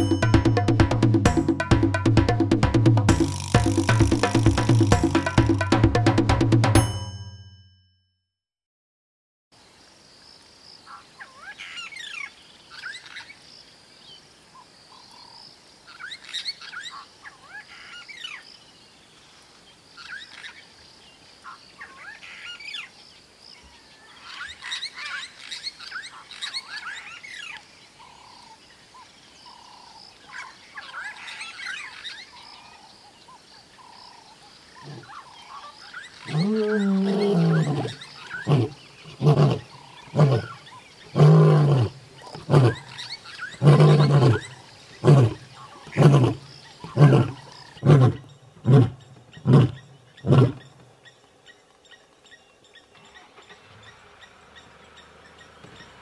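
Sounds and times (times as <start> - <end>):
high drone of bush ambience: 9.6 - 56.0
wild bird calls: 10.8 - 13.5, 14.5 - 18.6, 19.2 - 56.0
lion roaring: 34.8 - 35.2, 36.2 - 50.6.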